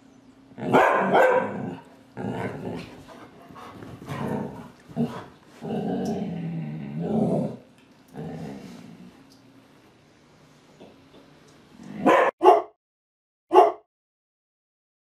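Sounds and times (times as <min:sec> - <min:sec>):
dogs barking: 0:00.6 - 0:01.8, 0:12.0 - 0:12.7, 0:13.5 - 0:13.8
dog growling: 0:01.4 - 0:09.2, 0:11.8 - 0:12.2.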